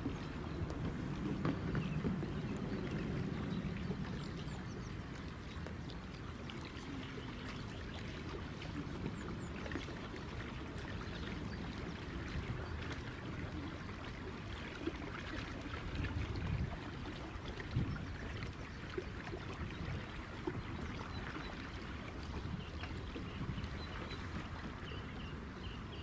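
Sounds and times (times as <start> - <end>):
water splashing along a boat hull: 0.0 - 26.0.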